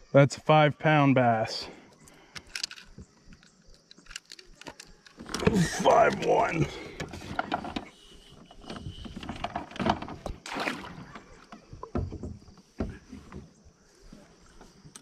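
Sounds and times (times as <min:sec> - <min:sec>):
water splashing: 0:10.2 - 0:11.9.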